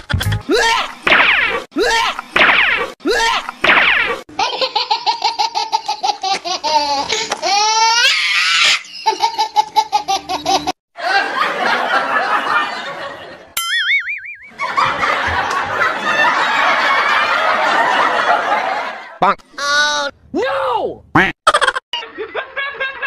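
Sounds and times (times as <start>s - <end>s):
people laughing: 8.9s - 13.6s, 14.5s - 19.2s, 21.5s - 23.0s.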